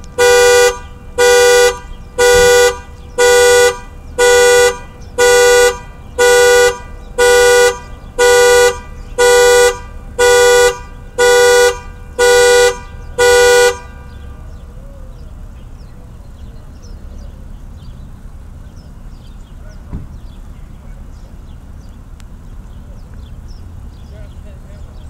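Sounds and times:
car alarm two-tone horn honks: 0:00.0 - 0:15.9.

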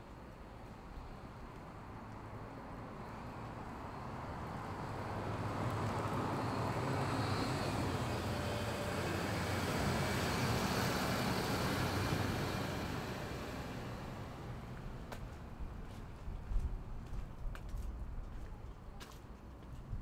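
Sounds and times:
motor vehicle passing by: 0:04.0 - 0:14.8.

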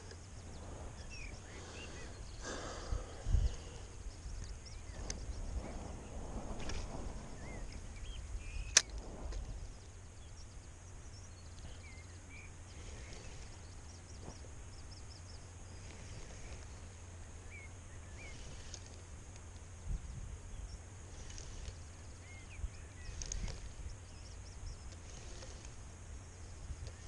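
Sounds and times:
small birds chirping: 0:00.0 - 0:27.0
wind rumble: 0:00.0 - 0:27.0
sharp click: 0:08.6 - 0:09.0.

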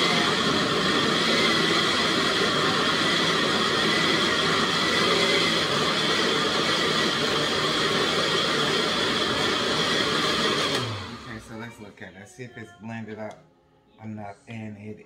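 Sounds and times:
blender running: 0:00.0 - 0:11.7.

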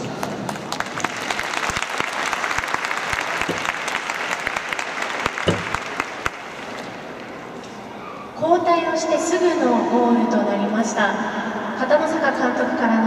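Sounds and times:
crowd applauding: 0:00.0 - 0:07.4.

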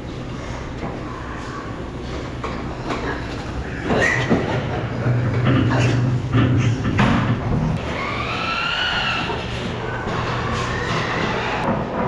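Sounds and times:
steady low hum: 0:00.0 - 0:12.0
pig squealing: 0:03.6 - 0:04.4, 0:07.8 - 0:11.7.

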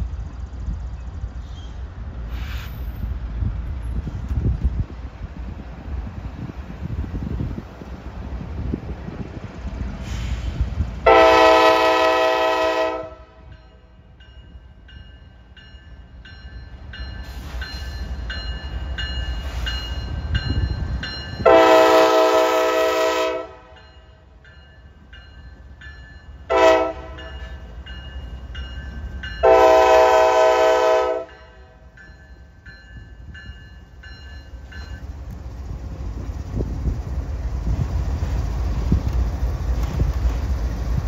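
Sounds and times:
diesel locomotives rumbling by: 0:00.0 - 0:41.0
locomotive air horn blasts: 0:11.0 - 0:13.5, 0:21.4 - 0:23.8, 0:26.5 - 0:27.4, 0:29.4 - 0:31.8.

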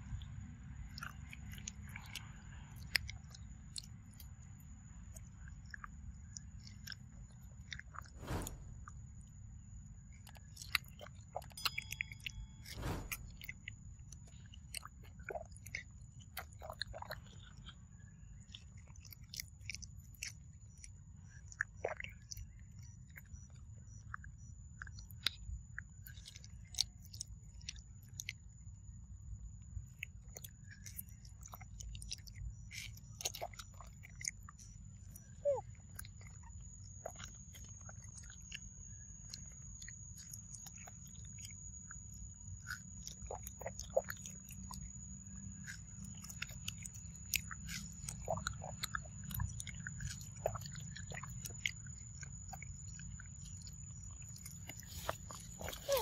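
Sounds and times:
monkey chewing juicy fruit: 0:10.0 - 0:28.4, 0:29.9 - 0:56.0.

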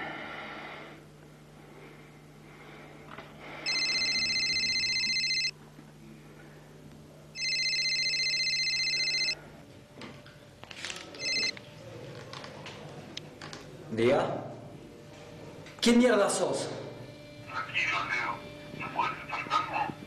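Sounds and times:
electronic telephone ringing: 0:03.7 - 0:05.6, 0:07.4 - 0:09.4, 0:11.2 - 0:11.6.

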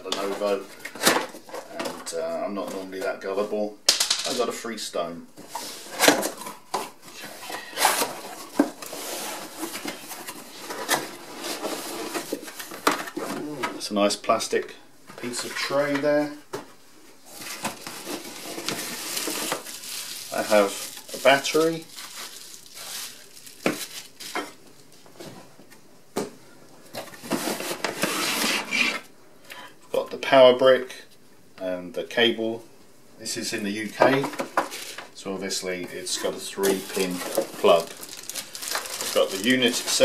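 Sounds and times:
cardboard scraping and rustling: 0:05.4 - 0:13.6, 0:17.3 - 0:22.3, 0:27.0 - 0:29.0, 0:36.0 - 0:40.0.

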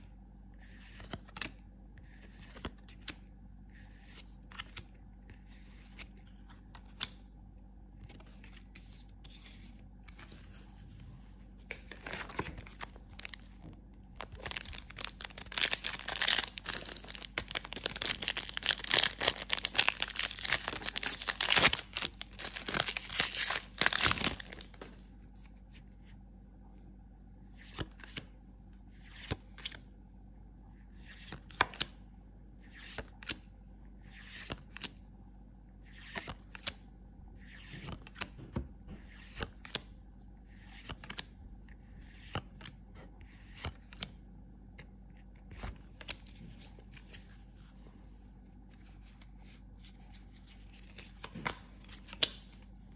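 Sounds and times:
foil pack crackling and tearing: 0:14.2 - 0:24.7.

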